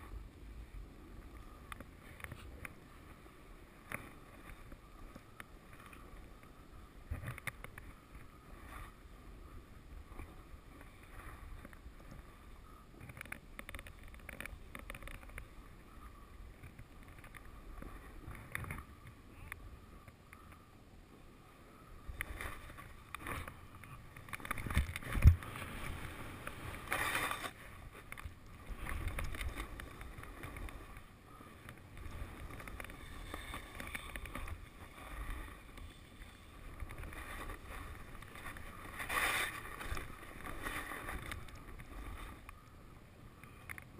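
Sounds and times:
skis scraping over snow: 22.2 - 42.5.

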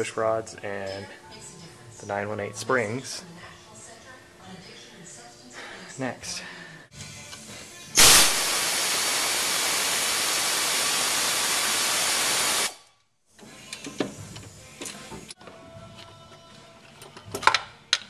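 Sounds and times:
air ratchet compressed air hiss: 8.0 - 12.8
tool handling clicks: 13.6 - 15.4.

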